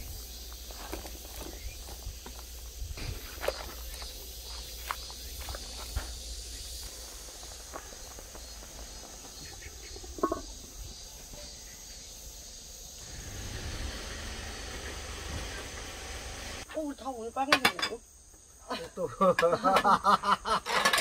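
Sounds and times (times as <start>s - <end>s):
steady hiss: 0.0s - 16.6s.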